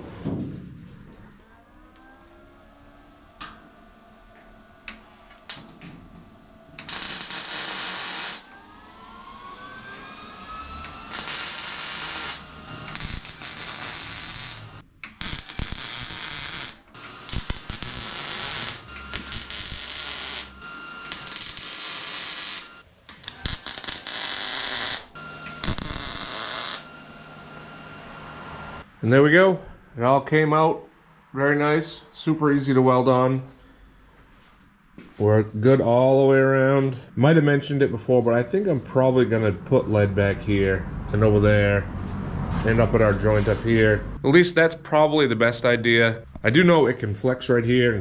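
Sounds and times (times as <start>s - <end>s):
welding arc crackling: 6.8s - 8.5s, 10.8s - 26.9s.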